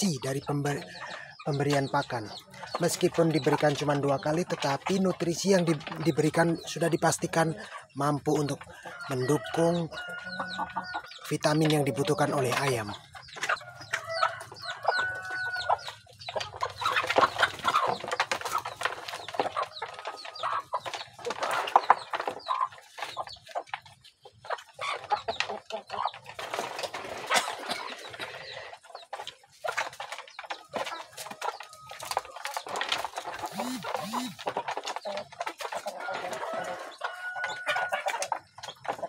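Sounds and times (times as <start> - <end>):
chickens clucking: 0.0 - 39.0.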